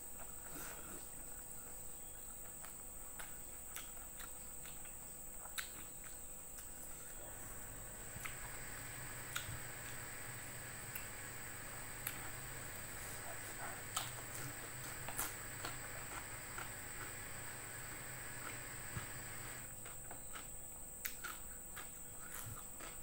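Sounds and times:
person chewing food: 0:02.5 - 0:23.0
high-pitched whine: 0:07.2 - 0:19.7.

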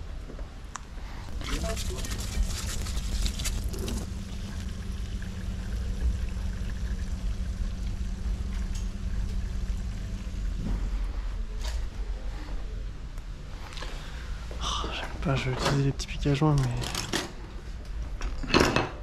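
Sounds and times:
machine humming: 0:01.3 - 0:11.5.

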